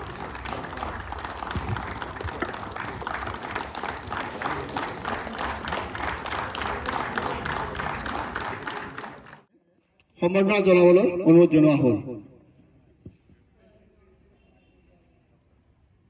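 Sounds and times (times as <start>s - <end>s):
audience applauding rhythmically: 0.0s - 9.5s.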